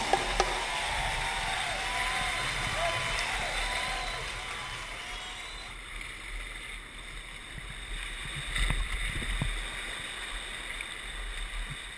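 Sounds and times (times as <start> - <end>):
splashes and knocks: 0.0 - 1.4
wind on microphone: 0.0 - 5.7
surf washing around kayak: 0.0 - 11.9.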